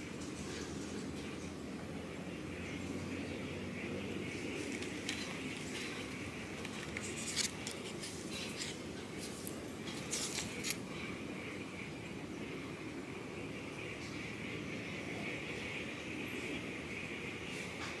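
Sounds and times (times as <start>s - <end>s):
steady low background noise: 0.0s - 18.0s.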